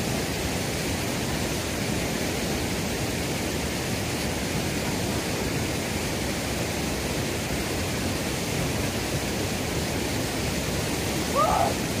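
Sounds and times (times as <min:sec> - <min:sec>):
fast-flowing water rushing: 0:00.0 - 0:12.0
pitched call: 0:11.3 - 0:11.8.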